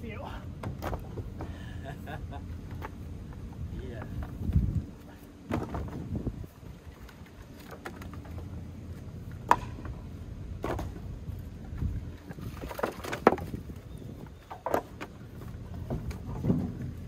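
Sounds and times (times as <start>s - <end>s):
low steady rumble: 0.0s - 17.0s
firewood pieces knocking together: 0.6s - 1.6s, 5.5s - 6.1s, 9.4s - 10.0s, 10.6s - 11.1s, 11.7s - 17.0s.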